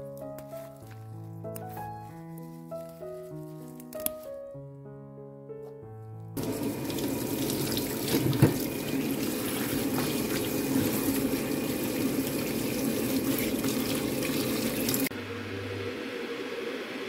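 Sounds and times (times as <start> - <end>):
tap water splashing on greens: 6.4 - 15.1.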